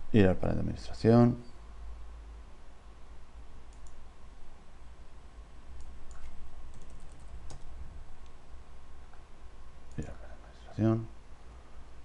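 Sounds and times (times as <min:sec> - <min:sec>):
steady low hum: 0:00.0 - 0:12.0
mouse clicks: 0:03.7 - 0:04.0
keyboard keystrokes: 0:05.8 - 0:07.7.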